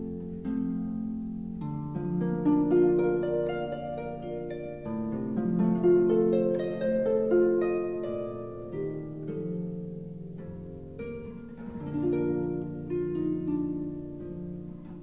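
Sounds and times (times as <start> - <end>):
solo harp playing: 0.0 - 15.0.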